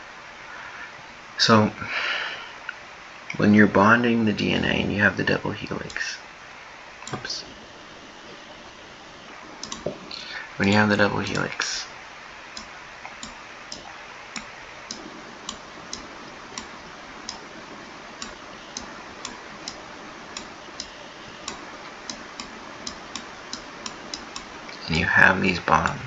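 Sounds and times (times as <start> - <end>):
steady background hiss: 0.0 - 26.0
computer mouse clicking: 9.6 - 9.9, 12.6 - 17.5, 18.2 - 24.5.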